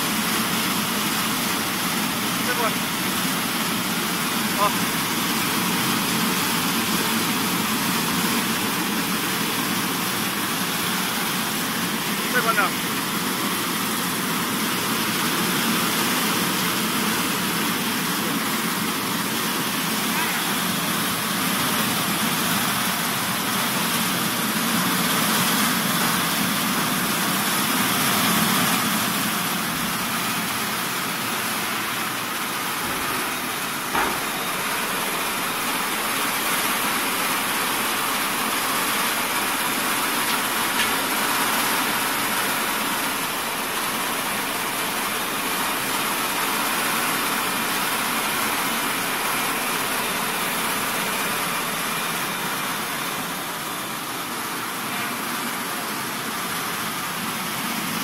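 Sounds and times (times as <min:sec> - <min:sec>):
hulling machine running: 0:00.0 - 0:58.0
short knock: 0:32.8 - 0:34.5.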